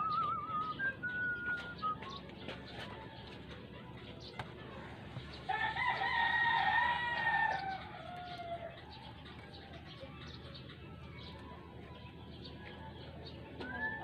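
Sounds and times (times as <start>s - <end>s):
rooster crowing: 5.5s - 8.8s.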